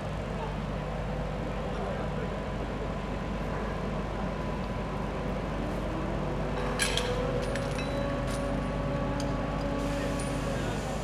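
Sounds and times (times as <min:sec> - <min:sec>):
construction machinery engine hum: 0:00.0 - 0:11.0
metallic clinks of steel parts: 0:06.6 - 0:08.6.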